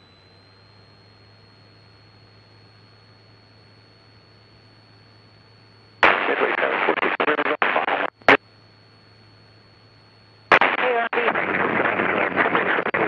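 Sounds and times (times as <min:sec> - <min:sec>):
faint steady hum: 0:00.0 - 0:13.0
crackly radio voice transmission: 0:06.0 - 0:08.4, 0:10.5 - 0:13.0.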